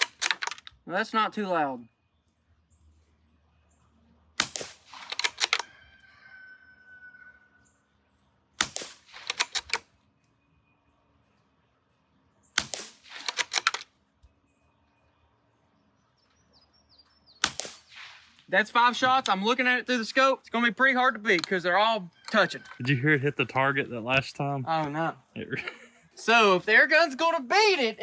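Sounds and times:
suppressed rifle shots: 4.4 - 5.6, 8.6 - 9.9, 12.6 - 13.8, 17.4 - 18.4
quick run of clicks: 8.6 - 9.8, 12.6 - 13.9.

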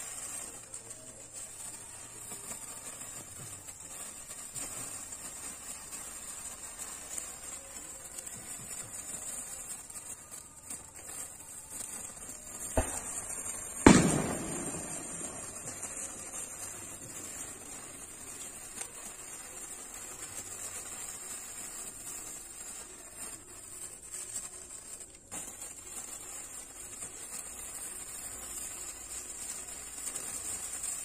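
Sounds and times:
sparklers hissing: 0.0 - 31.0.

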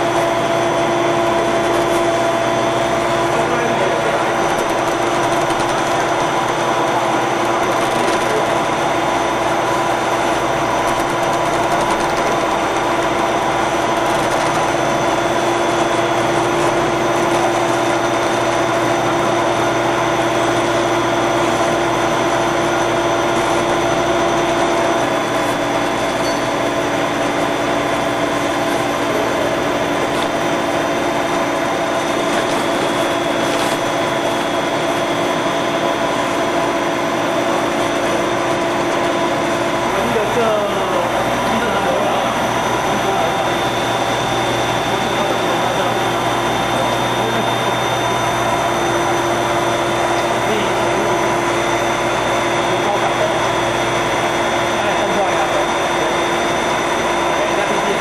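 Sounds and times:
machine hum and whine: 0.0 - 58.0.

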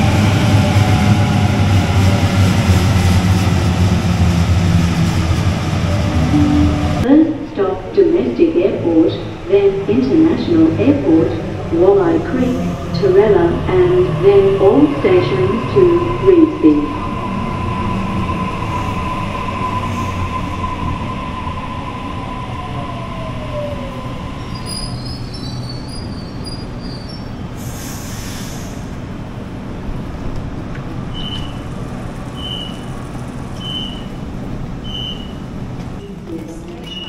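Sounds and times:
train brakes squealing: 24.4 - 28.9, 31.1 - 31.7, 32.3 - 33.0, 33.6 - 34.2, 34.8 - 35.4
air hiss: 27.6 - 29.0.

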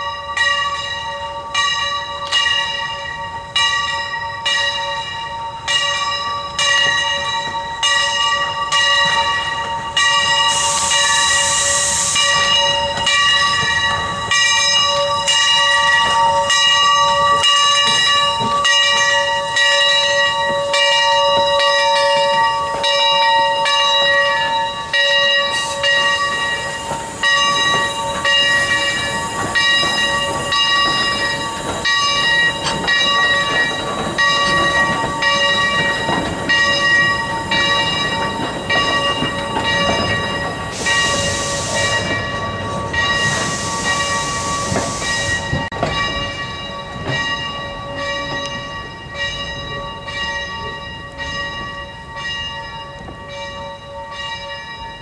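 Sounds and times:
passenger cars rumbling on rails: 0.0 - 55.0
steam locomotive bell ringing: 0.0 - 55.0
steam hissing: 6.2 - 47.8.

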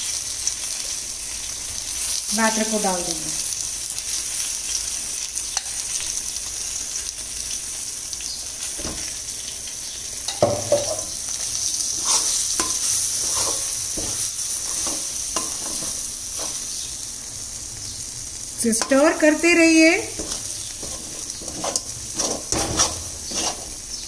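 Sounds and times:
batter sizzling in hot oil: 0.0 - 24.0
spatula scraping and knocking pan: 10.3 - 11.2, 11.9 - 16.7, 20.1 - 24.0.

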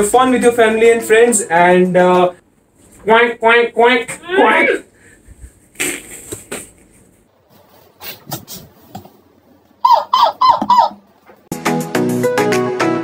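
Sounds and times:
squeaky imitation duck quacks: 9.8 - 11.0
upbeat background music: 11.5 - 13.0.

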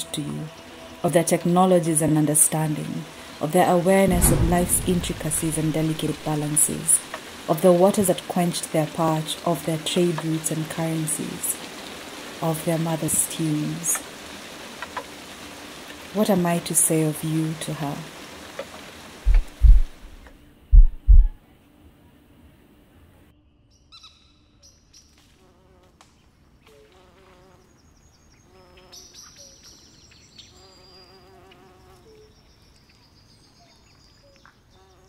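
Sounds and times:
deep loud thuds: 4.1 - 7.1, 19.3 - 21.4
insect-like buzzing and chirping: 26.6 - 32.5, 33.9 - 35.0.

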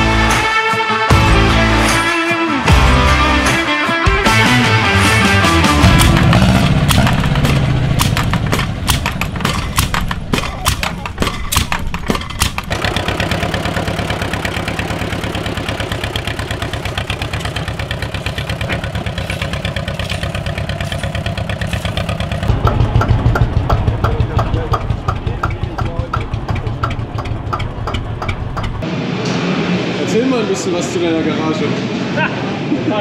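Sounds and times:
bulldozer engine running: 2.6 - 28.9
clattering knocks: 5.8 - 28.8.

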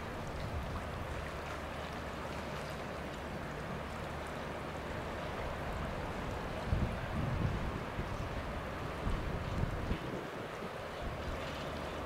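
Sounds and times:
gentle water movement: 0.0 - 12.0
low wind rumble: 4.5 - 12.0.

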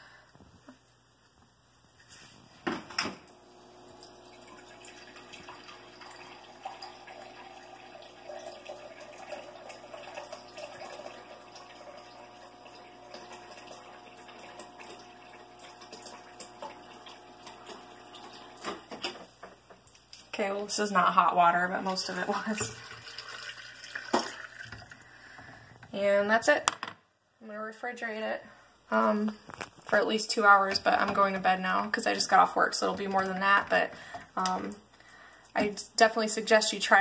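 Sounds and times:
steady hum: 0.0 - 19.2
water streaming into a container: 3.3 - 18.9, 21.3 - 25.2.

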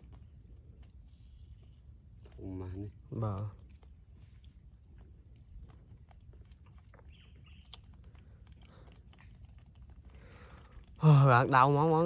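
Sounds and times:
crab shell clicks and scratches: 5.5 - 11.0.

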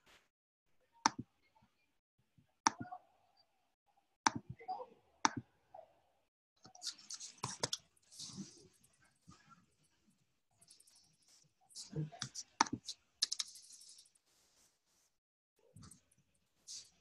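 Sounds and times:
mouse clicks: 2.7 - 2.9
keyboard typing: 12.2 - 14.1.

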